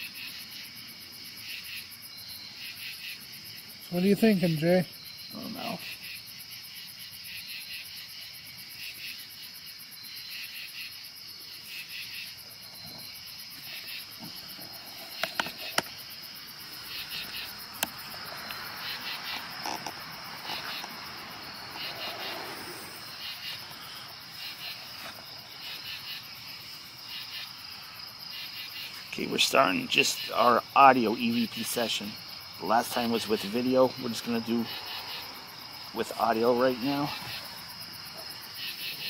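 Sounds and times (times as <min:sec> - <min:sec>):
cricket trill: 0:00.0 - 0:39.0
pulsed insect chirps: 0:00.0 - 0:39.0.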